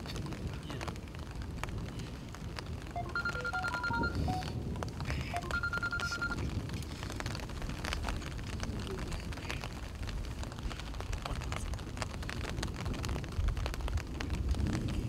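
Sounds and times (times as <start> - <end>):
light ticks and crackles: 0.0 - 15.0.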